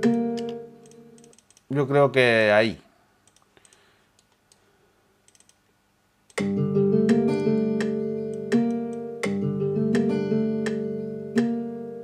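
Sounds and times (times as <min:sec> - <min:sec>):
plucked steel-string guitar loop: 0:00.0 - 0:01.2, 0:06.4 - 0:12.0
faint mouse clicks: 0:03.2 - 0:04.6.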